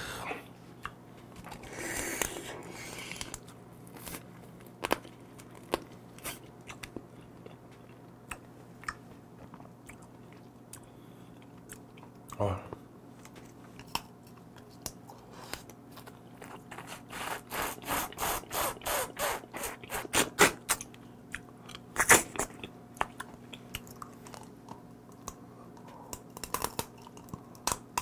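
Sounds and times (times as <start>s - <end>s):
chewing crunches: 20.7s - 28.0s
crab shell cracking: 26.1s - 28.0s.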